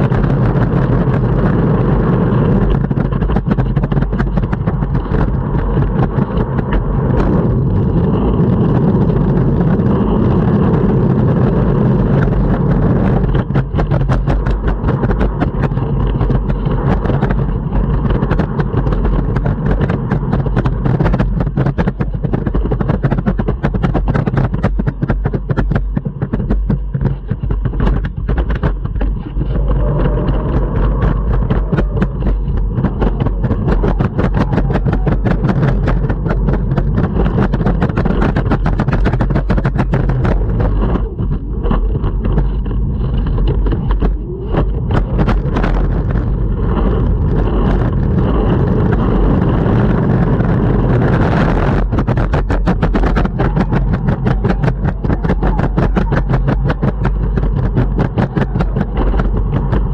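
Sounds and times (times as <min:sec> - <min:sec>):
longboard clacks: 0:00.0 - 0:59.9
longboard wheels rumbling: 0:00.0 - 0:59.9.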